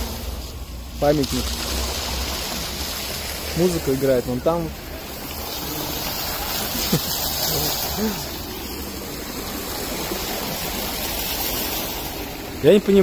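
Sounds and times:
fountain water splashing: 0:00.0 - 0:13.0.

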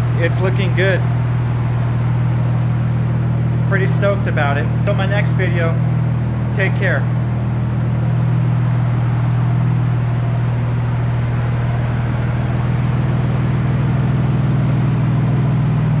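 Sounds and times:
car engine idling: 0:00.0 - 0:16.0
engine lifter ticking: 0:00.0 - 0:16.0
loud exhaust: 0:00.0 - 0:16.0.

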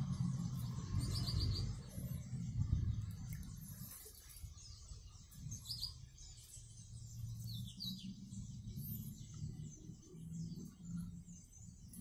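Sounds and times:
canaries chirping: 0:00.0 - 0:02.5, 0:03.2 - 0:12.0
low rumble: 0:00.0 - 0:05.6.

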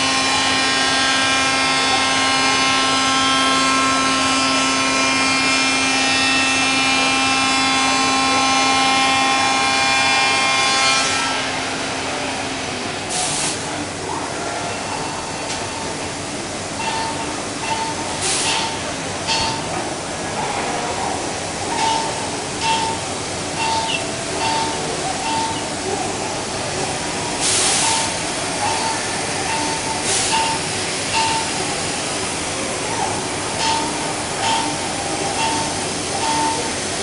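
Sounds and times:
cnc machine whine: 0:00.0 - 0:12.8
low machine running noise: 0:00.0 - 0:37.0.

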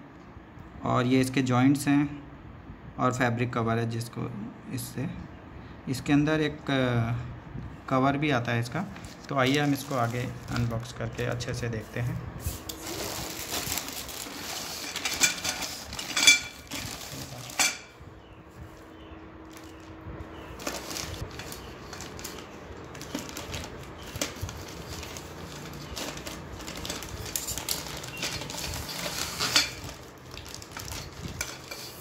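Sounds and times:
plastic crinkling: 0:08.9 - 0:17.8, 0:19.5 - 0:32.0
scissors cutting plastic: 0:20.6 - 0:32.0.

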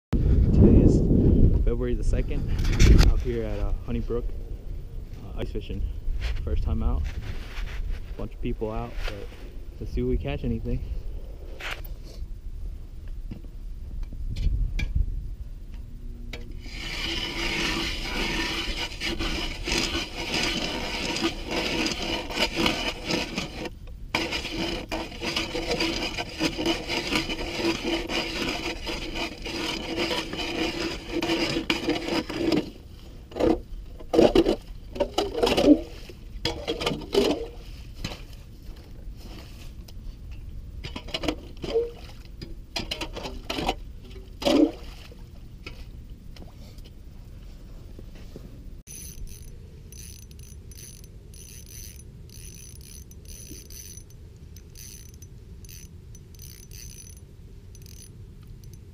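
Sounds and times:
ice auger grinding through ice: 0:16.6 - 0:32.7, 0:48.9 - 0:57.2, 0:57.8 - 0:58.8.

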